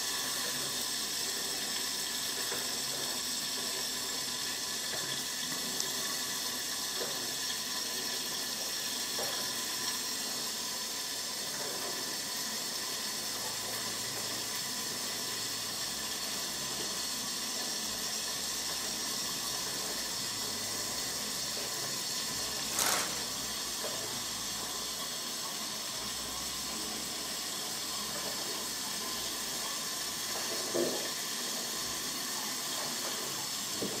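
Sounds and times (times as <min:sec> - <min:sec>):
plastic wrap rustling: 0:22.7 - 0:23.3.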